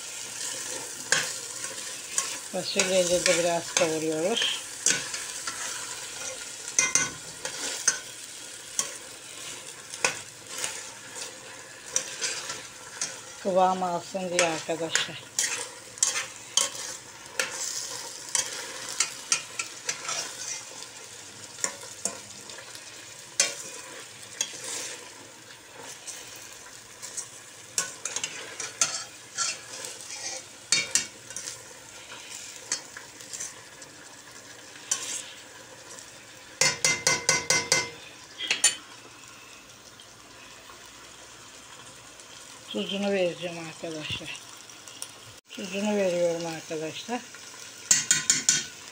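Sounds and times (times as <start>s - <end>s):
beans sizzling in oil: 0.0s - 48.9s
spoon scraping and clicking on pot: 15.4s - 17.7s, 27.0s - 31.6s, 47.9s - 48.8s.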